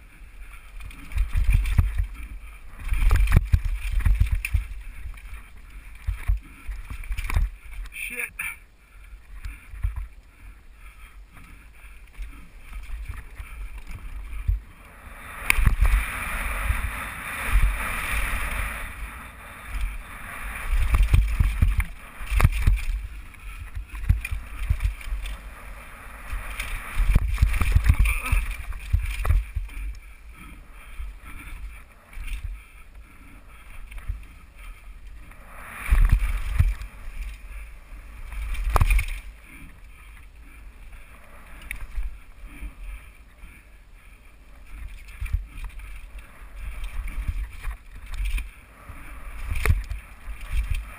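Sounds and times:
mountain bike rattling: 0:00.0 - 0:08.2, 0:09.0 - 0:50.9
wind buffeting microphone: 0:12.1 - 0:42.5
tyres rumbling over dirt: 0:15.4 - 0:32.6.

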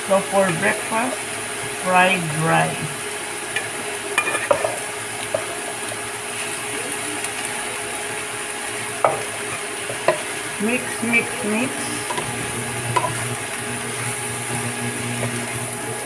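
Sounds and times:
food sizzling in a pan: 0:00.0 - 0:16.0
wooden spatula stirring food: 0:04.4 - 0:10.6, 0:11.8 - 0:15.9.

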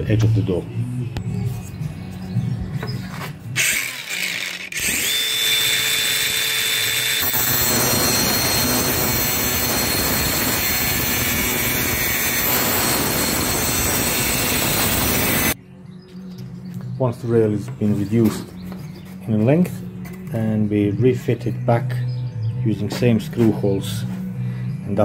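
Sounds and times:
angle grinder whine: 0:03.2 - 0:15.6
grinder cutting metal: 0:03.6 - 0:15.6.

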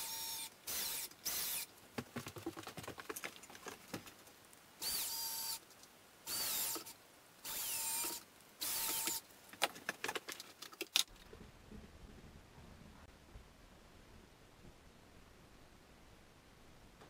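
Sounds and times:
cordless drill whining into wood: 0:00.0 - 0:01.7, 0:04.8 - 0:05.6, 0:06.3 - 0:09.2
small clicks and knocks: 0:08.8 - 0:11.4.

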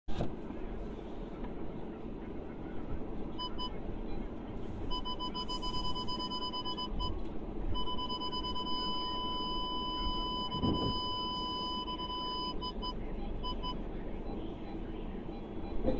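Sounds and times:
car warning beeps: 0:03.3 - 0:15.9.

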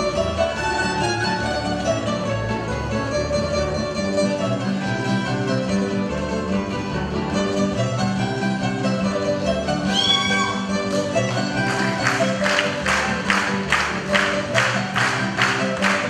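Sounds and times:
fiddle: 0:00.0 - 0:16.0
plucked strings: 0:00.0 - 0:16.0.

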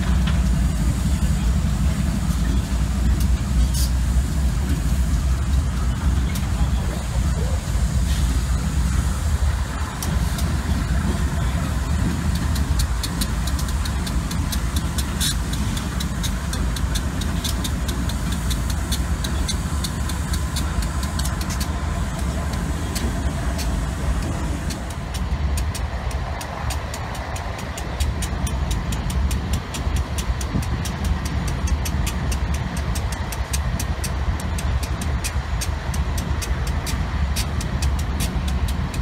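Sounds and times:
low engine rumble: 0:00.0 - 0:39.0
short sharp ticks: 0:12.3 - 0:39.0.

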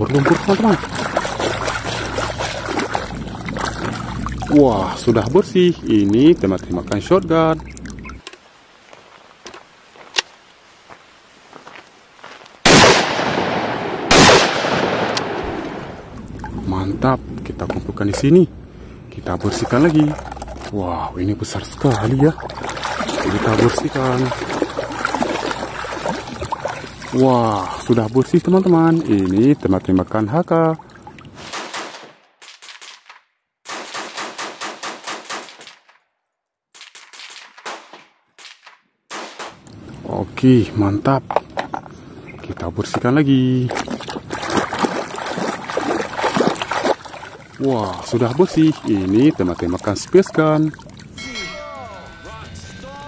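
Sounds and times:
shotgun shots echoing: 0:12.7 - 0:16.1.

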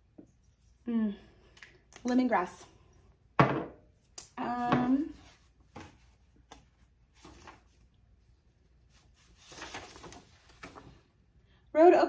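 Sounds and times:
faint rustles of packaging: 0:04.0 - 0:11.3.

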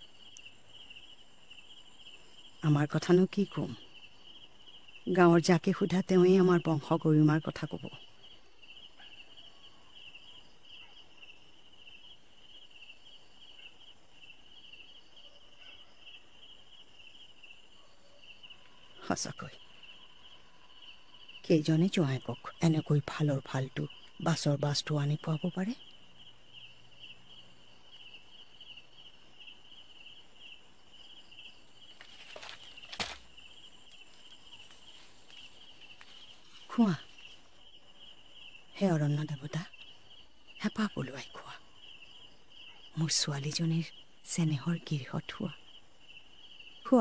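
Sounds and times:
crickets chirping: 0:00.0 - 0:47.0
rustling: 0:31.8 - 0:37.7.

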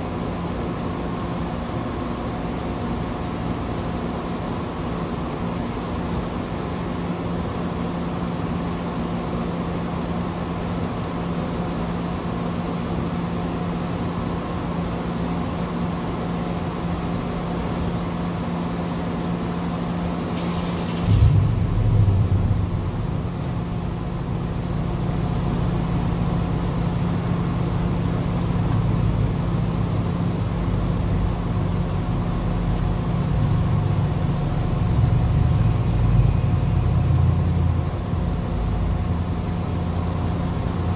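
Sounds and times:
vehicle engines idling: 0:19.2 - 0:40.9
deep low rumble: 0:21.0 - 0:26.0.

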